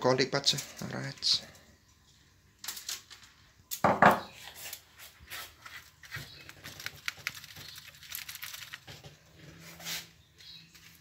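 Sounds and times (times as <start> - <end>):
aluminium foil crinkling: 4.4 - 9.4.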